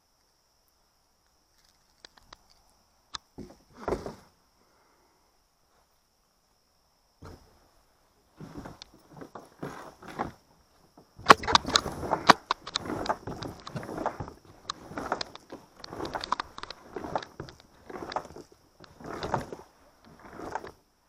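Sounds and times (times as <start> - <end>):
kayak paddle strokes: 8.4 - 20.9.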